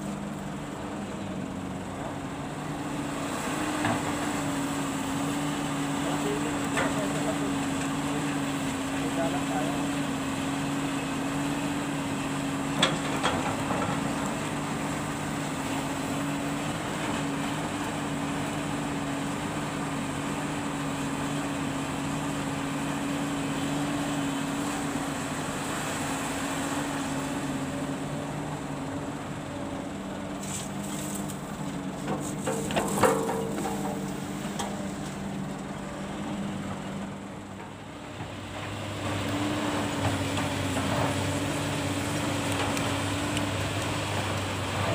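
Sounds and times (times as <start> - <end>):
diesel engine running: 0.0 - 44.9
engine clattering: 30.6 - 35.8
sharp metallic knocks: 32.1 - 34.7.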